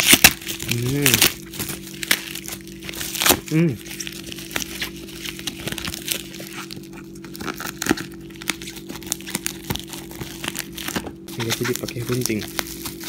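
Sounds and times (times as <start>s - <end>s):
bubble wrap crinkling: 0.0s - 13.0s
steady low hum: 0.0s - 13.0s.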